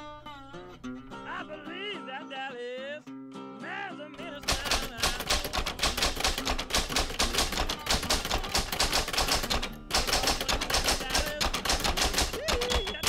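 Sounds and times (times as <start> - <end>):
typewriter keys clacking: 4.4 - 13.0.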